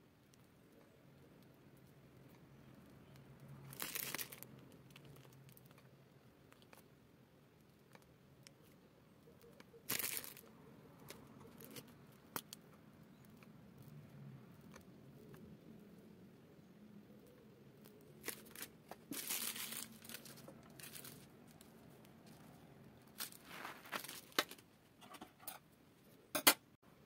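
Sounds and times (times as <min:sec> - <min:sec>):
plastic piping bag crinkling: 0:01.6 - 0:16.1, 0:17.1 - 0:24.6.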